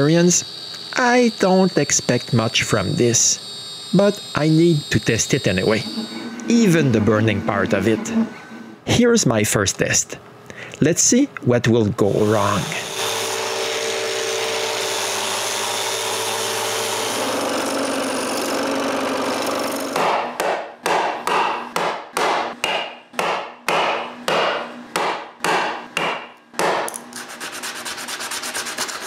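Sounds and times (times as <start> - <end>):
steady motor hum: 0.0 - 8.9, 12.0 - 20.2
hand sanding: 27.1 - 29.0.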